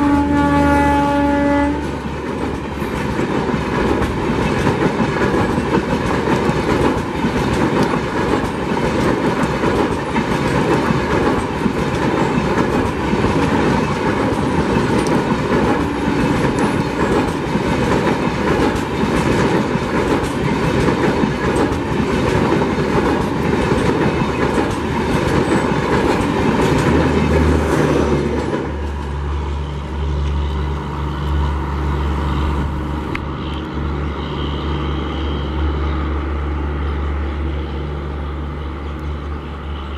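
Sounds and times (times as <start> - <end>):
train low rumble: 0.0 - 39.9
train wheels clattering: 1.8 - 29.2.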